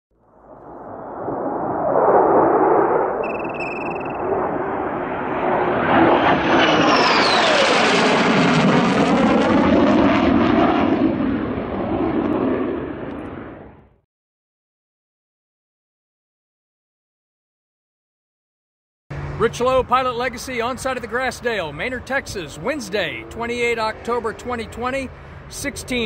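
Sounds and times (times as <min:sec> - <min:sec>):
whine falling in pitch: 0:00.2 - 0:13.8
aircraft flyby rush: 0:00.2 - 0:13.9, 0:19.1 - 0:26.0
short high beep: 0:03.2 - 0:04.4.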